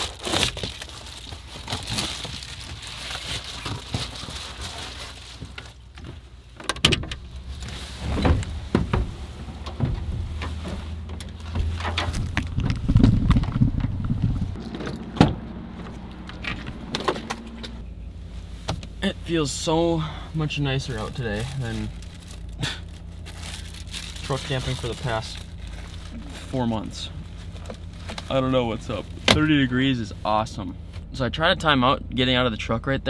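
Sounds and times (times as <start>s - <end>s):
clothes rustling: 0.0s - 6.6s, 7.3s - 19.0s, 20.8s - 29.3s
low engine hum: 0.1s - 33.0s
truck door opening and shutting: 5.9s - 17.8s.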